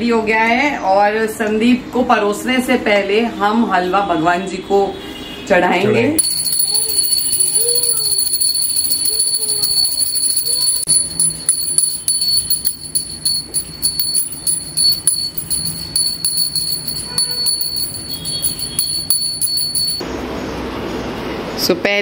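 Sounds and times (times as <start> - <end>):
small brass hand bell ringing: 6.2 - 20.0.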